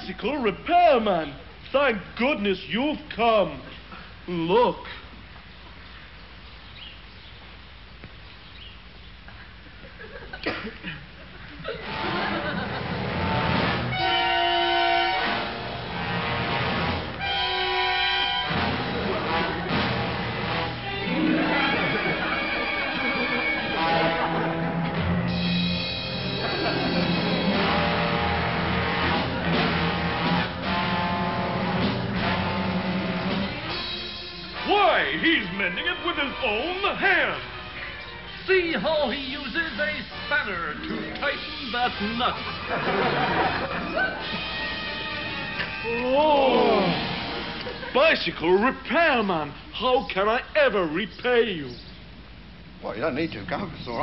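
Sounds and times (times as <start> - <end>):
film soundtrack hum and hiss: 0.0 - 54.0
music: 11.8 - 47.9.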